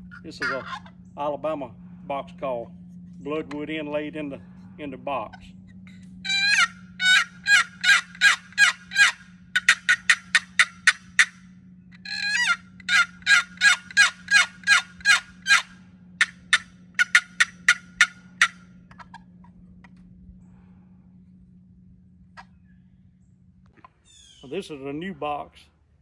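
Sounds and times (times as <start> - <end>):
turkey box call yelps: 0.0 - 1.0, 5.2 - 20.0, 23.8 - 24.7.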